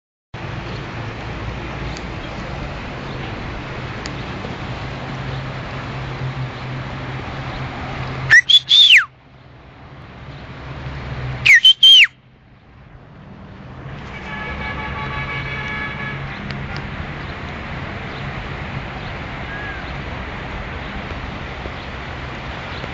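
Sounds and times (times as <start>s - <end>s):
loud piercing whistles: 8.3s - 9.1s, 11.4s - 12.2s.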